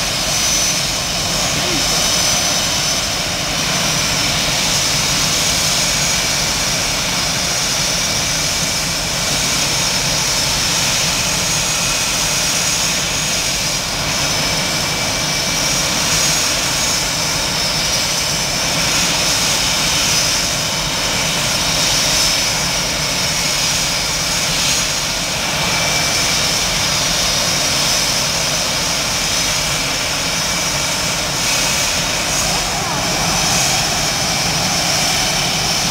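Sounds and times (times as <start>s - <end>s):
jet engines whining: 0.0s - 35.9s.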